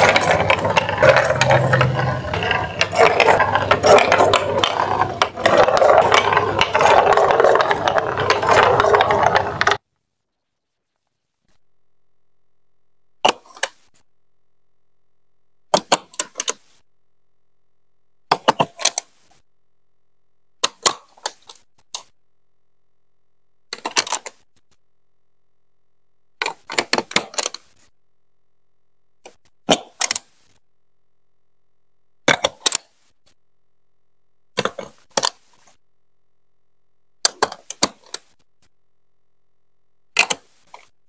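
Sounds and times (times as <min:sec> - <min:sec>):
plastic bricks clicking: 0:00.0 - 0:09.8, 0:13.2 - 0:13.8, 0:15.7 - 0:16.6, 0:18.3 - 0:19.1, 0:20.6 - 0:22.1, 0:23.7 - 0:24.4, 0:26.4 - 0:27.7, 0:29.2 - 0:30.3, 0:32.3 - 0:32.9, 0:34.6 - 0:35.6, 0:37.2 - 0:38.4, 0:40.1 - 0:40.9.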